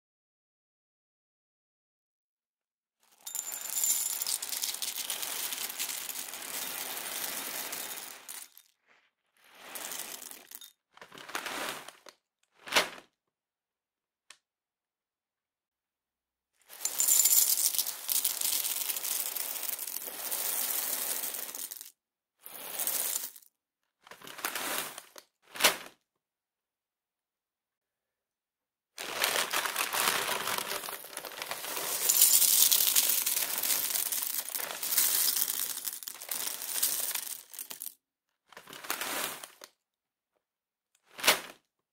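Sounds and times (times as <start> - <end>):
cornflakes poured into bowl: 3.2 - 8.7, 9.4 - 12.0, 16.7 - 23.4, 24.3 - 25.1, 29.0 - 38.0, 38.6 - 39.7.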